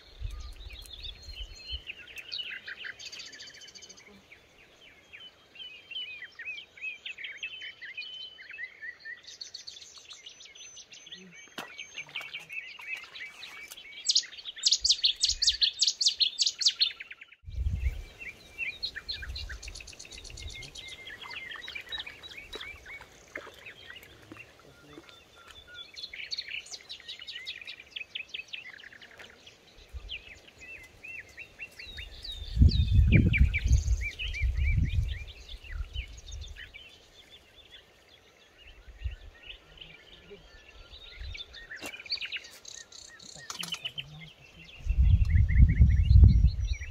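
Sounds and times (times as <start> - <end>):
songbirds singing and chirping: 0.0 - 46.9
low microphone rumble: 17.5 - 18.2, 32.4 - 36.6, 44.7 - 46.9.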